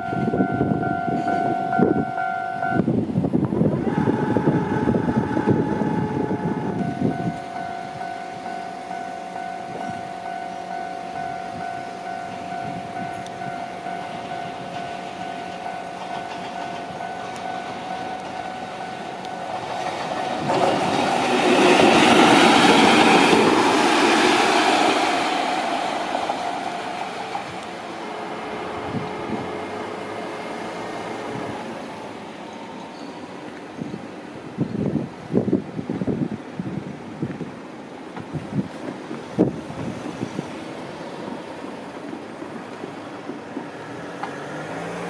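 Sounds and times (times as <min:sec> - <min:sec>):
steady high tone: 0:00.0 - 0:02.9, 0:03.7 - 0:33.6
train rumble: 0:00.0 - 0:45.0
train wheels on rails: 0:00.0 - 0:45.0.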